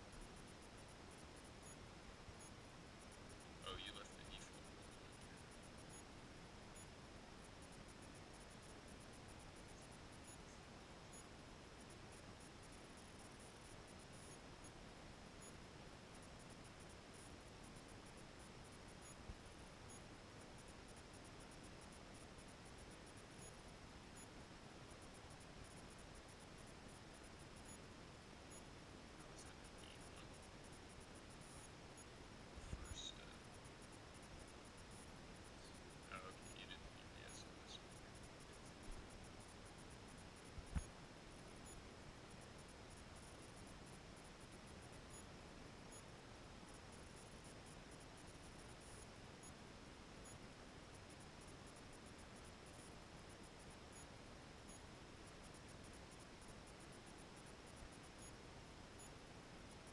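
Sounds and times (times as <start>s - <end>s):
faint high chirps: 26.6s - 39.2s.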